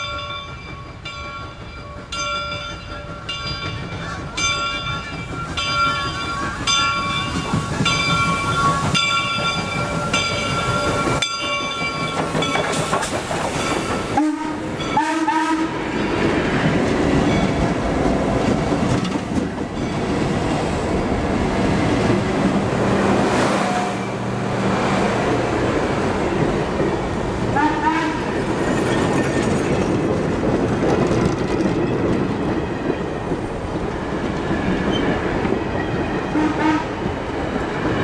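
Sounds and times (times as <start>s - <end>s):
diesel train passing: 0.0s - 38.0s
locomotive whistle blasts: 14.2s - 15.8s
wheels clattering over rail joints: 28.4s - 33.5s.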